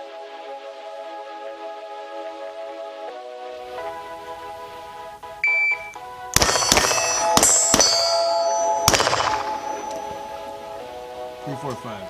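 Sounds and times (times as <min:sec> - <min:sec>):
background music: 0:00.0 - 0:12.0
shot timer beep: 0:05.4 - 0:06.0
rifle shots: 0:06.4 - 0:10.4.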